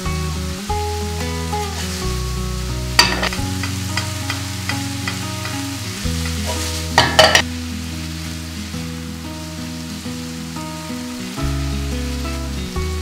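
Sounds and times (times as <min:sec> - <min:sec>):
meat sizzling in a frying pan: 0:00.0 - 0:13.0
spatula scraping and clattering: 0:03.0 - 0:07.5.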